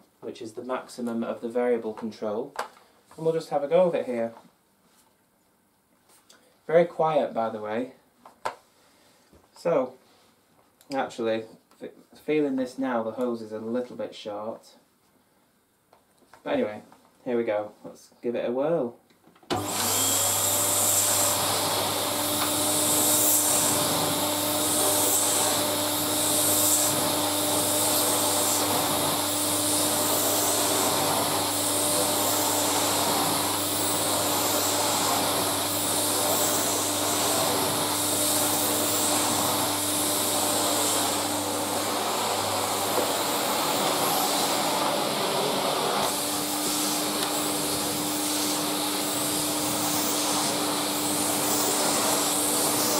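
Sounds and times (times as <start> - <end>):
vacuum cleaner running: 19.5 - 52.9.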